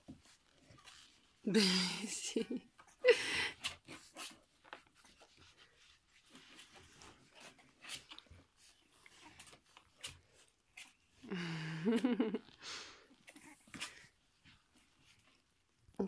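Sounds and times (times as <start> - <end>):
puppies snuffling: 2.7 - 11.3.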